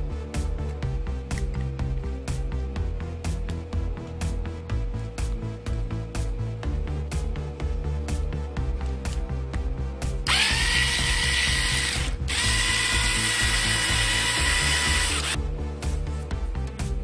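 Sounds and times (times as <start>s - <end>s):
background music with steady beat: 0.0s - 17.0s
cordless screwdriver whirring: 10.3s - 15.4s.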